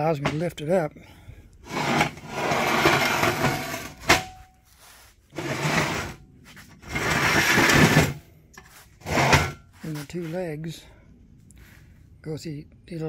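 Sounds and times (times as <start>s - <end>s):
radiator scraping against metal frame: 1.6s - 10.1s.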